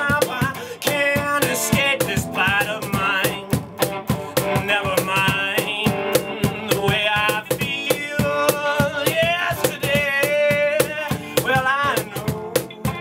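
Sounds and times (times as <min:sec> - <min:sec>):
electric guitar: 0:00.0 - 0:13.0
man singing: 0:00.0 - 0:13.0
steady drum beat: 0:00.0 - 0:13.0.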